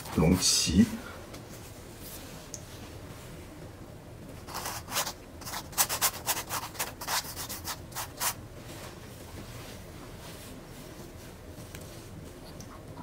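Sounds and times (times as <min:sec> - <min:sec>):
paintbrush scratching on canvas: 0:04.5 - 0:08.4.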